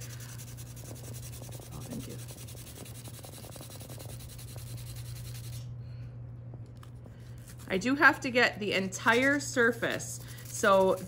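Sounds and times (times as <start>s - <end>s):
metal rubbed on sandpaper: 0.0s - 5.7s, 9.0s - 11.0s
steady low hum: 0.0s - 11.0s.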